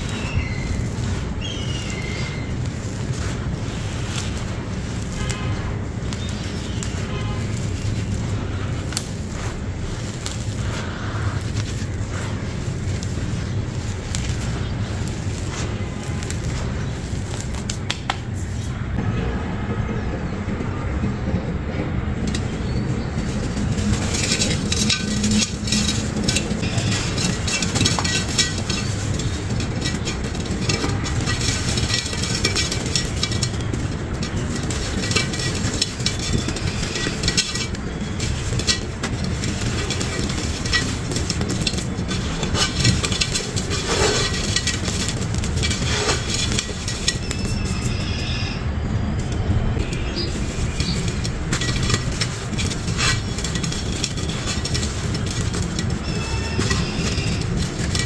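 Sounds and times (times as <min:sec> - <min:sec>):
grains spilling into clay pot: 0:00.0 - 0:17.9, 0:23.2 - 0:48.2, 0:50.1 - 0:58.0
gritty crumbs crushed between hands: 0:00.0 - 0:18.4, 0:23.3 - 0:48.2.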